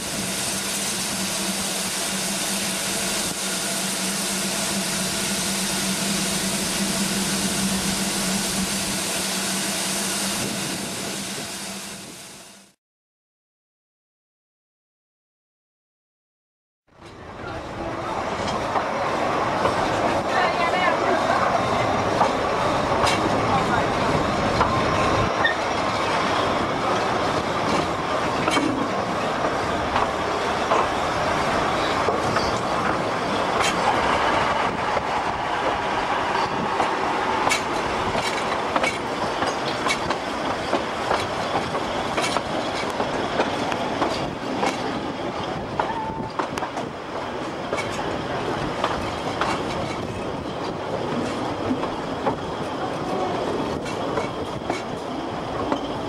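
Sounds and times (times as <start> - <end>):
train wheels clicking over rail joints: 22.0 - 23.6, 24.4 - 56.0.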